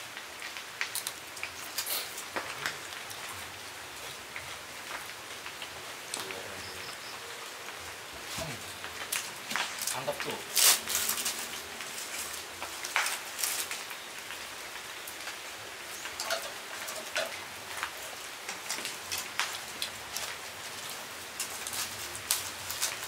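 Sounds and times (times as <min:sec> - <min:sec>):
steady hiss: 0:00.0 - 0:23.0
plastic and paper wrappings crinkling: 0:08.2 - 0:15.2, 0:16.0 - 0:23.0.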